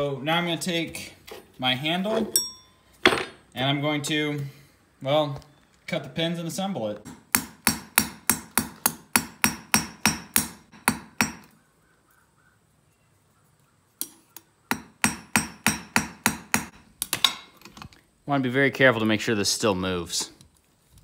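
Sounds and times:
hammer tapping steel pins: 7.1s - 11.5s, 14.7s - 17.4s.

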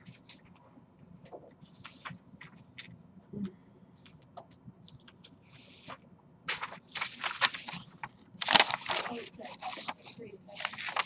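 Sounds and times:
book pages turning: 0.0s - 0.6s, 1.4s - 2.9s, 4.9s - 11.0s.

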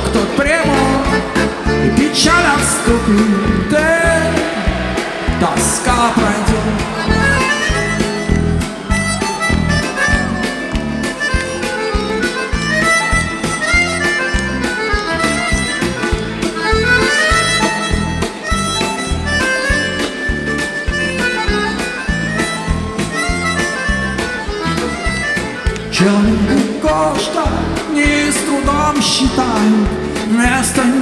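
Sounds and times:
rock band playing: 0.0s - 31.0s
steady drum beat: 1.4s - 19.3s
button accordion melody: 6.8s - 27.4s.

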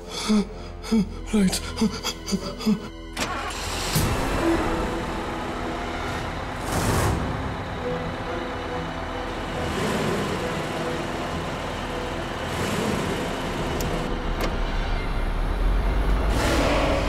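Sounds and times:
low rumbling drone: 3.9s - 17.0s.

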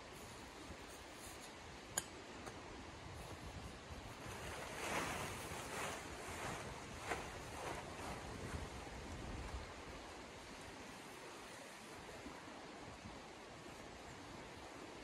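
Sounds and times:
tent fabric rustling: 3.1s - 12.0s.

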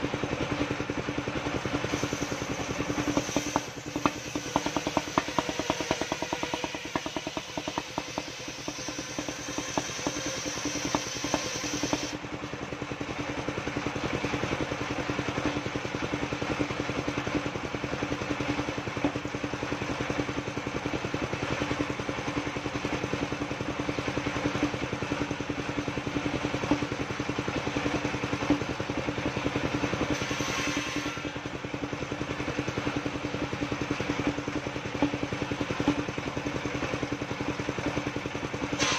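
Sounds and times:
sawmill engine running: 0.0s - 38.9s
circular saw blade ripping timber: 1.8s - 12.2s.

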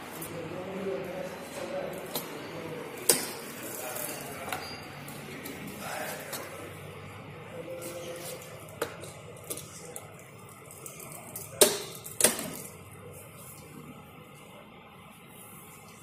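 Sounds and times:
low background noise: 0.0s - 16.0s.

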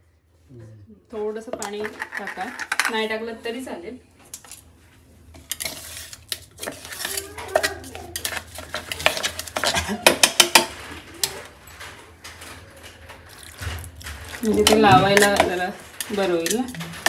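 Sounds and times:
knife scraping metal jar: 5.4s - 10.5s.

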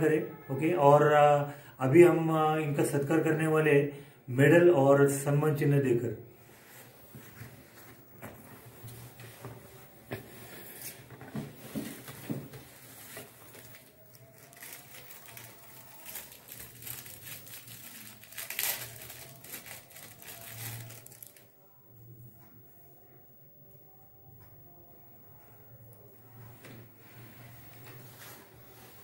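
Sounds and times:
packaging rustling and crinkling: 10.2s - 21.4s.

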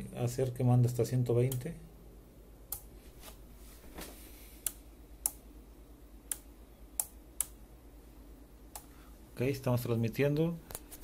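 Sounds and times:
sharp keying clicks: 6.2s - 7.6s.

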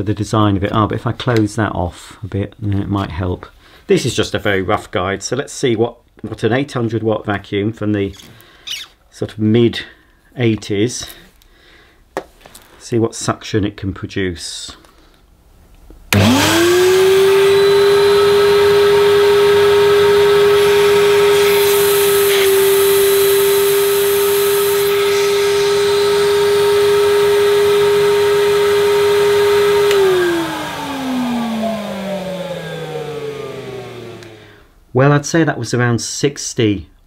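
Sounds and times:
vacuum cleaner motor whine: 16.1s - 34.7s.

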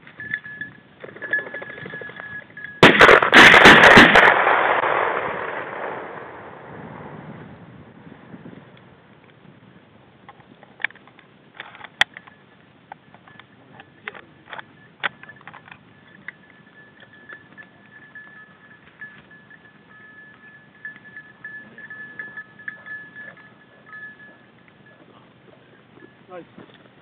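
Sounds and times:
lower beeping tone: 0.2s - 2.9s, 14.7s - 26.3s
high steady beeping tone: 14.7s - 26.4s.

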